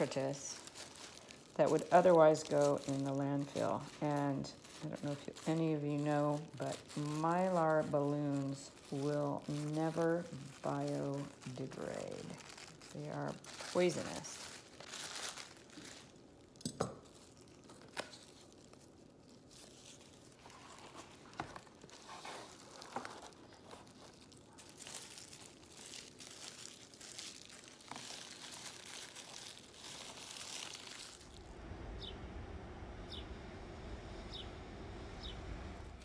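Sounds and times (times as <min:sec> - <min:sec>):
foil crinkling and rustling: 0:00.0 - 0:31.6
steady low hum: 0:31.3 - 0:36.0.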